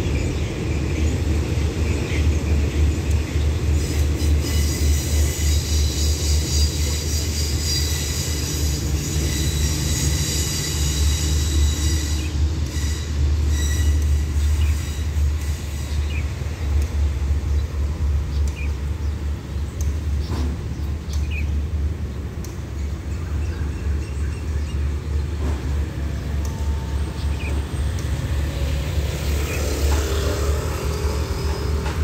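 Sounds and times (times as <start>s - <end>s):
cars and motorcycles passing: 28.3s - 32.0s.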